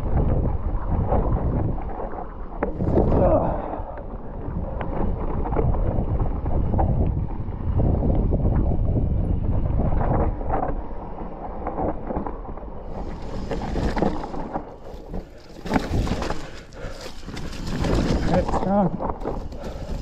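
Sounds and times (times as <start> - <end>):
bike tyres rattling: 0.0 - 20.0
wind rushing over microphone: 0.0 - 20.0
bike clattering over rocks: 11.7 - 20.0.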